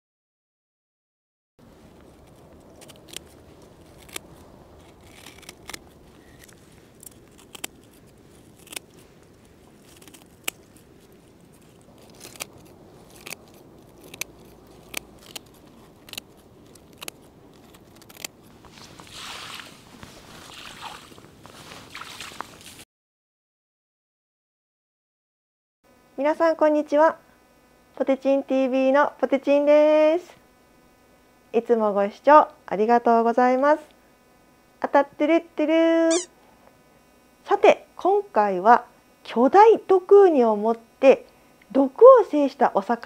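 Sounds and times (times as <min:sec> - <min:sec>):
scissors snipping spines: 0:01.9 - 0:19.7.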